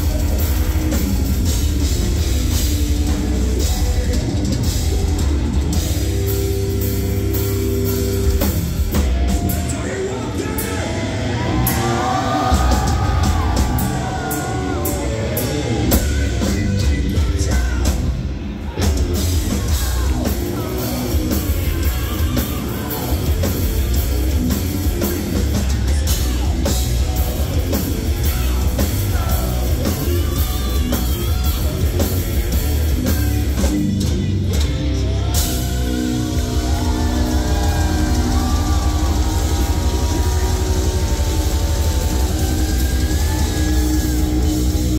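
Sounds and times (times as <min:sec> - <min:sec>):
distorted electric guitars: 0:00.0 - 0:44.9
drum kit: 0:00.0 - 0:44.9
person singing: 0:09.3 - 0:44.9.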